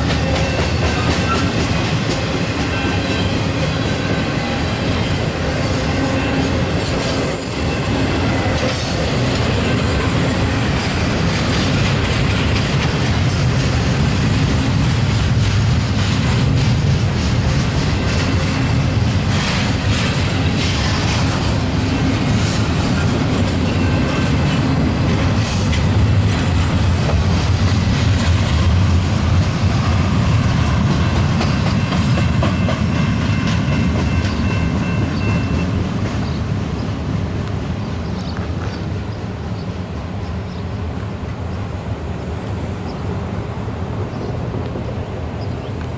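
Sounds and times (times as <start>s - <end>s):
train wheels rumbling and clattering: 0.0s - 45.9s
high wheel squeal: 2.6s - 9.2s.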